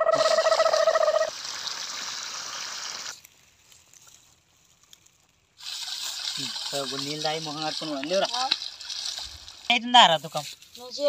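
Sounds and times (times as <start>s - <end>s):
water pouring from pipe: 0.1s - 3.3s, 5.6s - 10.4s.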